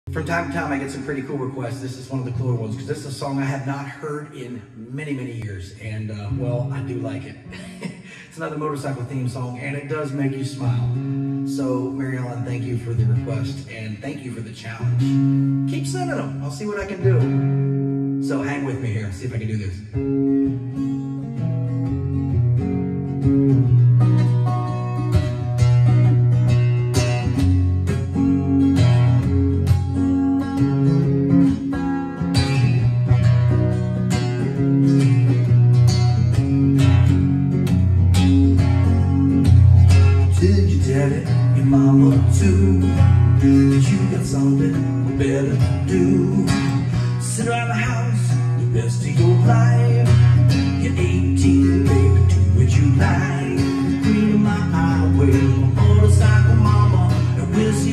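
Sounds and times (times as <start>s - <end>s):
acoustic guitar strumming: 0.1s - 57.9s
man singing: 40.2s - 57.9s.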